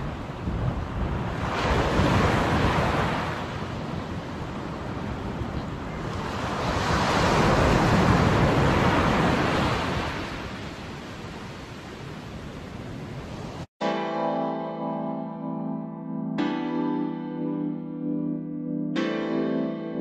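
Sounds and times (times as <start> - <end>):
ocean waves breaking on sand: 0.0 - 13.7.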